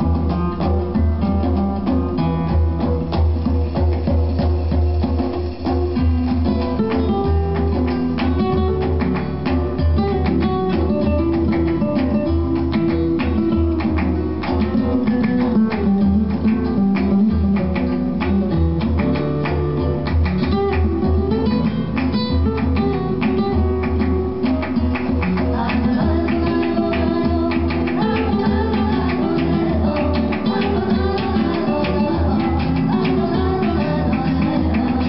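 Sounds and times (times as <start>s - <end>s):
guitar music with bass line: 0.0s - 35.0s.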